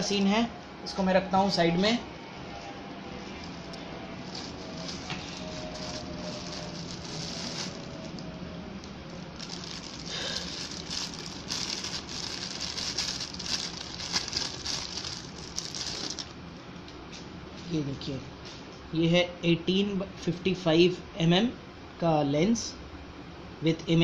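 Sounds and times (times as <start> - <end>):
plastic bag crinkling: 3.4 - 16.4.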